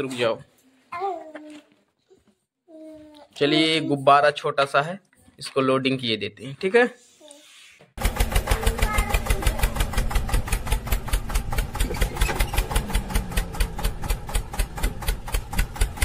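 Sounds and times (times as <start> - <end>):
tractor engine chugging: 8.0 - 16.0.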